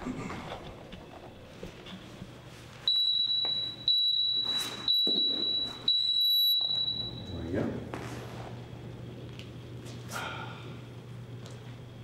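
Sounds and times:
high-pitched electronic timer beeps: 2.9s - 7.3s.

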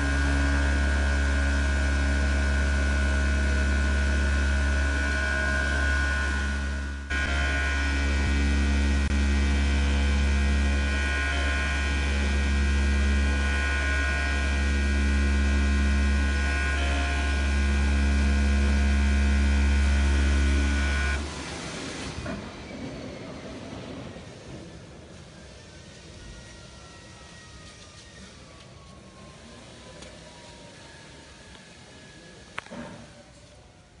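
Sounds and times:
oscillating knife low hum: 0.0s - 21.2s
thin high whine: 0.0s - 21.3s.

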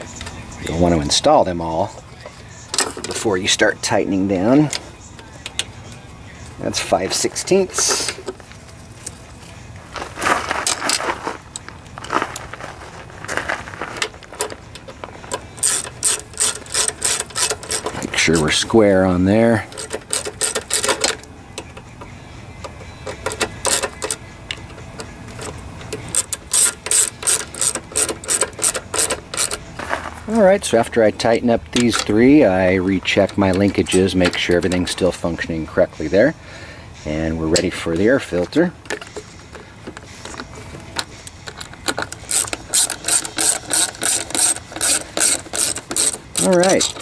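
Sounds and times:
tool being handled: 2.7s - 3.4s, 10.0s - 18.7s, 19.7s - 31.0s, 31.6s - 32.3s, 37.6s - 47.0s
socket ratchet clicking: 14.4s - 18.0s, 19.7s - 21.9s, 22.6s - 29.6s, 38.8s - 47.0s.

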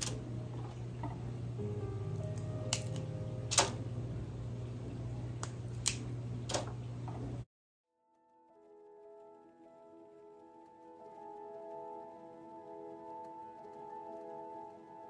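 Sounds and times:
steady low hum: 0.0s - 7.4s
asparagus snapping: 5.4s - 6.6s.

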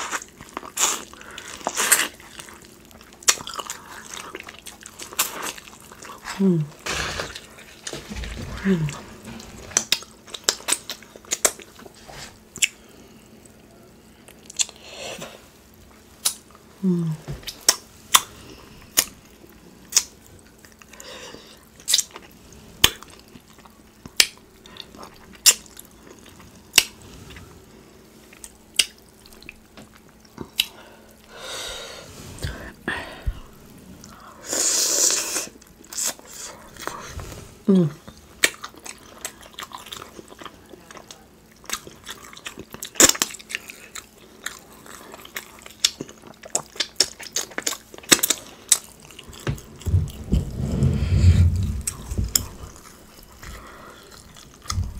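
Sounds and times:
person humming: 6.4s - 6.8s, 16.8s - 17.3s, 37.7s - 38.1s
wet chewing with lip smacks: 14.2s - 14.8s, 38.0s - 50.3s.

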